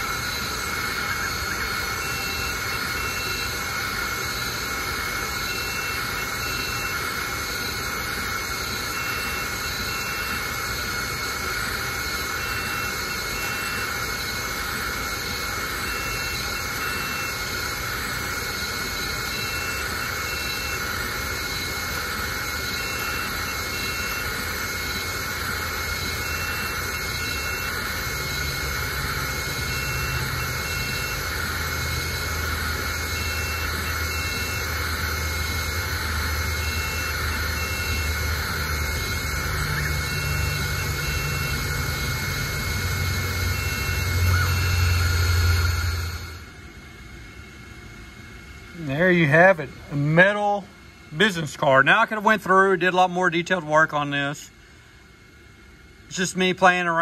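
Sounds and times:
laser engraver fans and motors whirring: 0.0 - 57.0.

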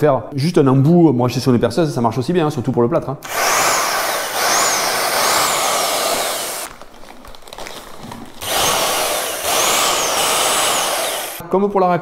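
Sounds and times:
electric paddle mixer whining: 3.3 - 6.7, 8.4 - 11.4.

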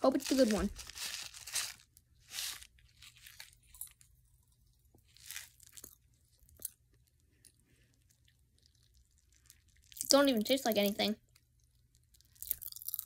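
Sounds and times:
popping candy crackling: 0.0 - 4.0, 8.2 - 13.0.

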